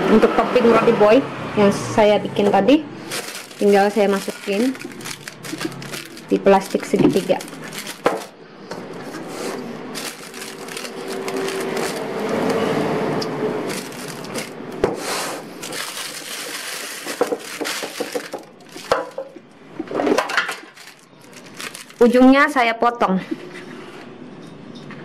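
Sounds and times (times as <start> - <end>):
plastic bag rustling: 3.0 - 8.4, 9.2 - 12.5, 13.6 - 22.4.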